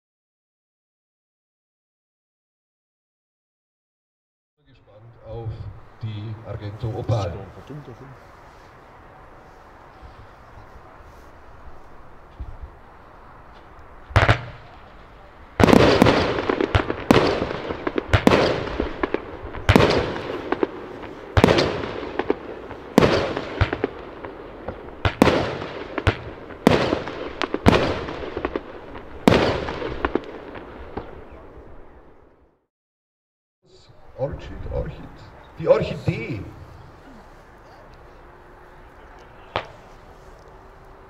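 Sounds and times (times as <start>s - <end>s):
firework shots popping: 13.5s - 31.5s, 39.5s - 40.0s.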